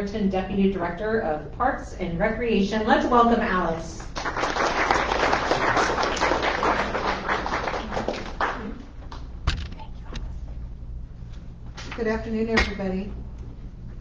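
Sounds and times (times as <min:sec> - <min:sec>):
audience applauding: 0:04.1 - 0:08.9
microphone knocks: 0:09.4 - 0:10.3.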